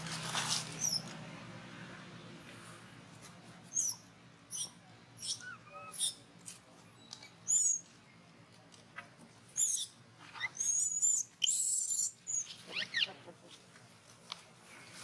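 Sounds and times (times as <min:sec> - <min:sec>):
baby monkey distress squeals: 0:03.7 - 0:06.2, 0:07.4 - 0:07.8, 0:09.6 - 0:13.1.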